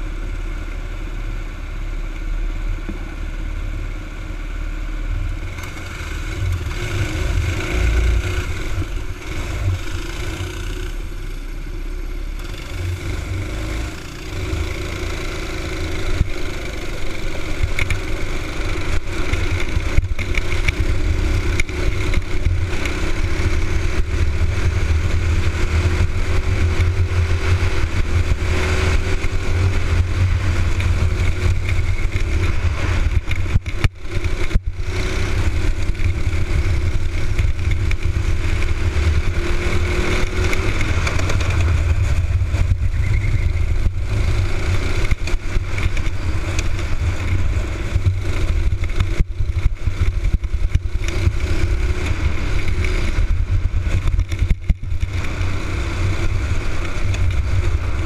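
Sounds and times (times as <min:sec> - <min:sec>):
kart engine running hard: 0:00.0 - 0:58.0
low rumble: 0:17.3 - 0:58.0.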